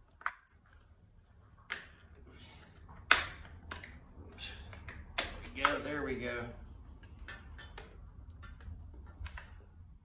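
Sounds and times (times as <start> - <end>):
wiring clicking and snapping: 2.8 - 6.2, 6.9 - 10.0.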